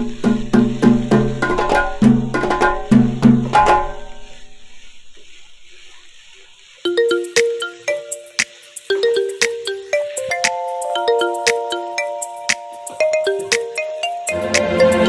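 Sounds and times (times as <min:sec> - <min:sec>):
rhythmic drum-like tune: 0:00.0 - 0:04.7, 0:06.6 - 0:15.0
chiming bell-like tune: 0:06.9 - 0:15.0.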